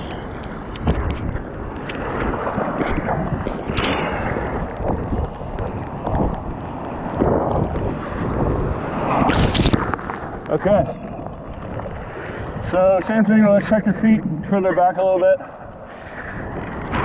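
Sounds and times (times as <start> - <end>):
whitewash churning and sloshing: 0.0 - 17.0
wind buffeting microphone: 0.0 - 17.0
loud splash of spray: 9.1 - 10.5.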